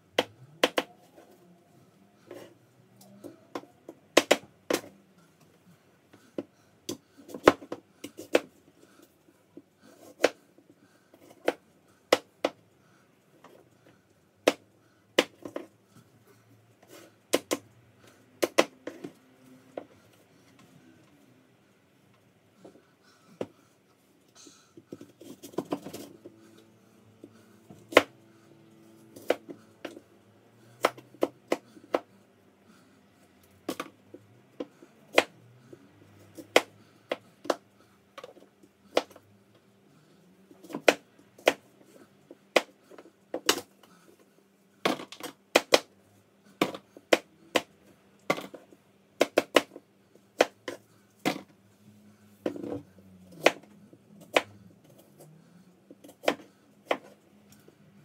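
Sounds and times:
knife chopping on cutting board: 30.8s - 32.0s.

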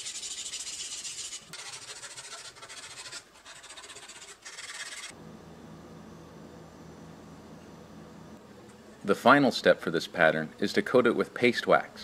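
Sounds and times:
sandpaper rubbing: 0.0s - 5.1s.

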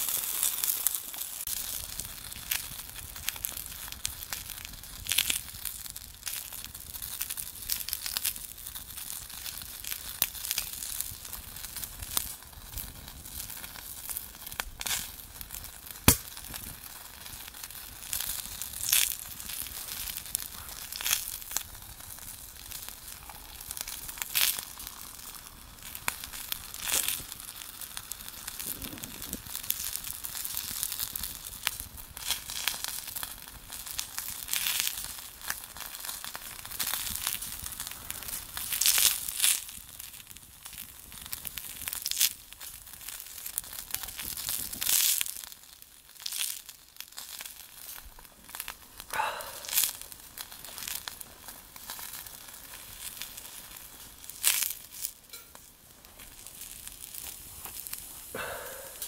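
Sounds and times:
twig fire crackling and popping: 0.0s - 59.0s.

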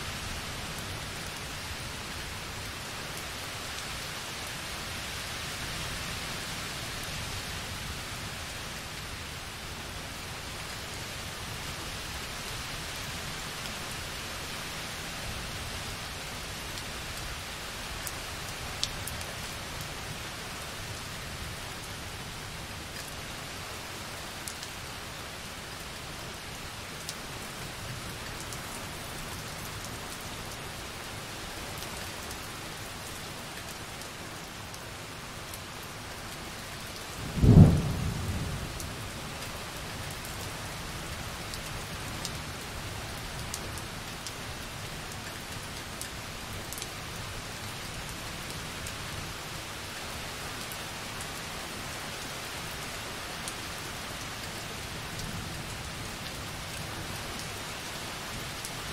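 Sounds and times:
rain on window glass: 32.8s - 51.3s
thunderclap rumbling: 37.4s - 38.6s.

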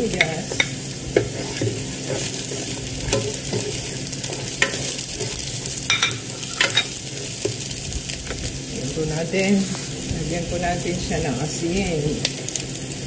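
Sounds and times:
onion sizzling in hot oil: 0.0s - 13.0s
spatula knocking against pan: 3.0s - 7.7s.

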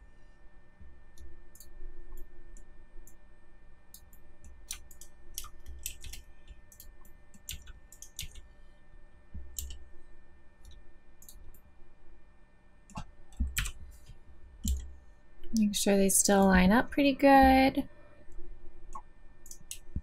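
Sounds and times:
faint electrical hum: 0.0s - 20.0s
keyboard and mouse clicking: 3.9s - 8.4s, 9.5s - 9.8s, 12.9s - 13.8s, 14.6s - 14.9s, 18.9s - 20.0s.

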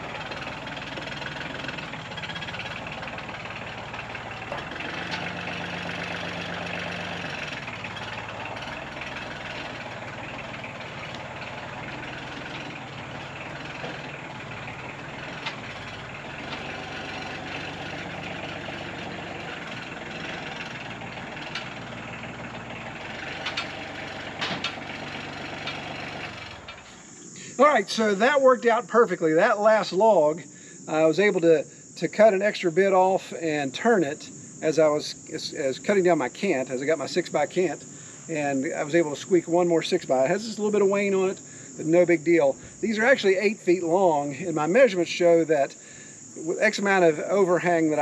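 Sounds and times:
tractor engine running: 0.0s - 30.0s, 35.4s - 48.0s
sharp clicks or clanks: 19.8s - 21.8s, 23.2s - 24.9s.

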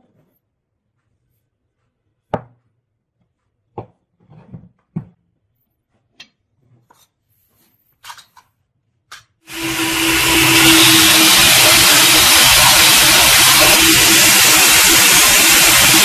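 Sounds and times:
belt sander sanding wood: 9.5s - 16.0s.

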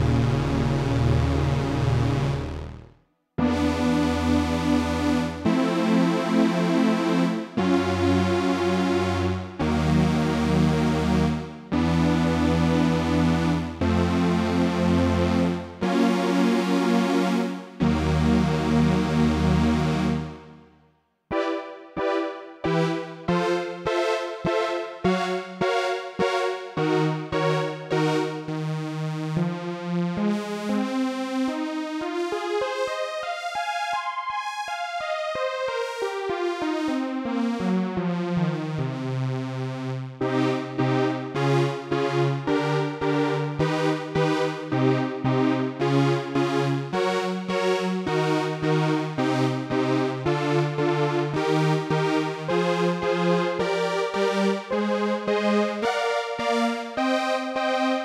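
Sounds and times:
synth bass line: 0.0s - 5.3s
pulsing synthesizer chords: 0.0s - 20.7s, 21.3s - 58.0s.

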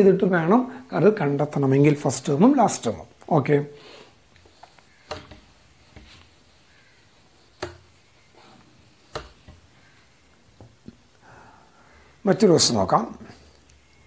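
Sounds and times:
duster rubbing on whiteboard: 4.4s - 10.9s.

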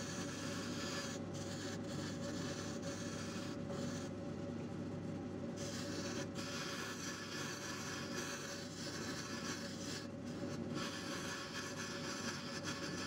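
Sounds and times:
sandpaper hissing on spinning wood: 0.0s - 4.1s, 5.6s - 13.0s.

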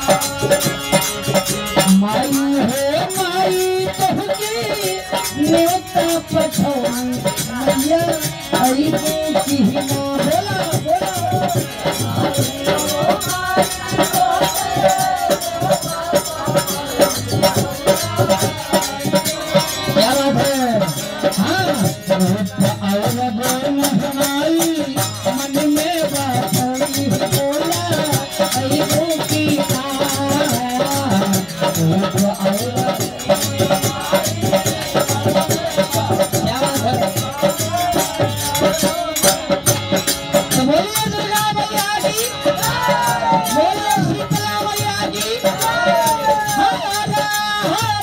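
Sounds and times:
person singing devotional song: 0.0s - 48.0s
rhythmic hand percussion: 0.0s - 48.0s.

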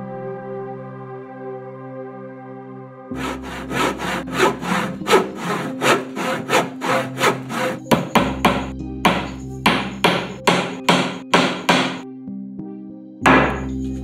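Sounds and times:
music: 0.0s - 14.0s
hand saw cutting wood: 3.1s - 12.0s, 13.3s - 13.7s.

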